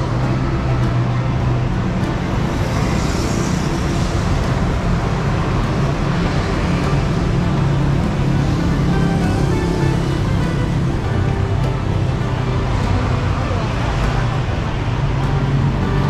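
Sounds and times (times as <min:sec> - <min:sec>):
vehicle engines humming: 0:00.0 - 0:16.0.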